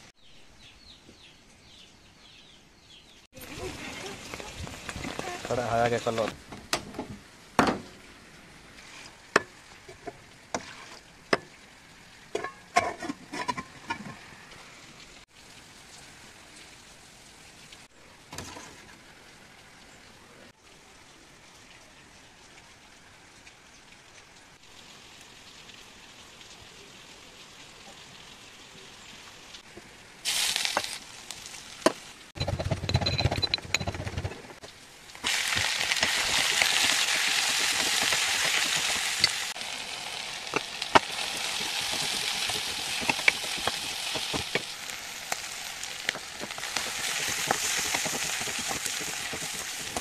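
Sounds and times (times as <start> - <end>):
faint hiss of gas stove: 18.9 - 32.3
utensils clinking and knocking: 32.4 - 34.5.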